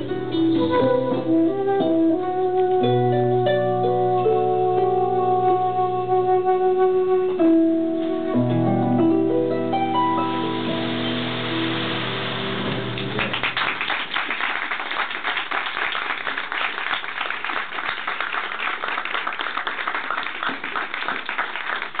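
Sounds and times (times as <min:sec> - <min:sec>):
harp notes: 0:00.0 - 0:13.2
audience applauding: 0:10.5 - 0:22.0.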